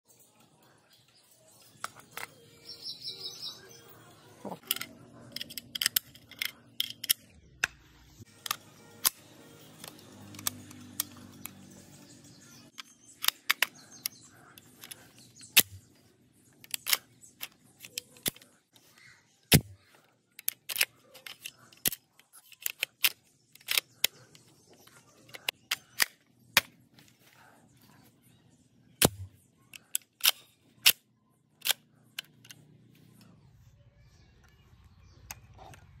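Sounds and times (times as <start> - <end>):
rifle action metal clicks: 4.6 - 9.2, 9.8 - 11.6, 12.7 - 18.6, 19.5 - 26.8, 29.0 - 32.6.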